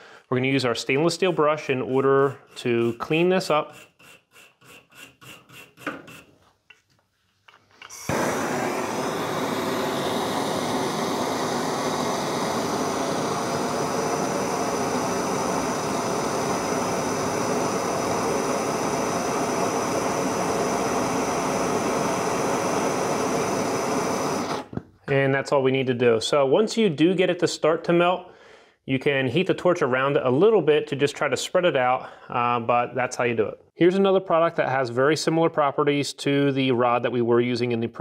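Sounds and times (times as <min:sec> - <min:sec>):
wire brush scrubbing metal tubing: 0:01.8 - 0:06.3
torch flame hissing: 0:07.9 - 0:24.8.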